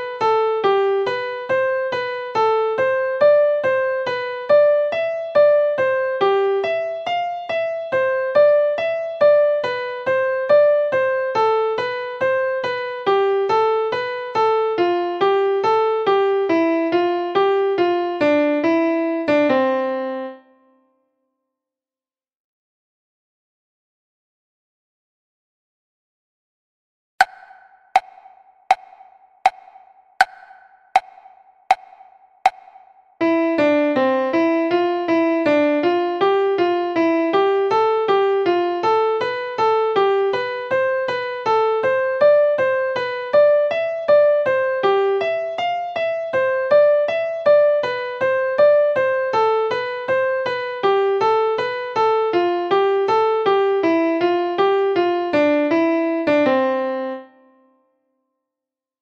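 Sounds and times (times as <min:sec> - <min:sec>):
metronome clicks: 0:27.2 - 0:32.9.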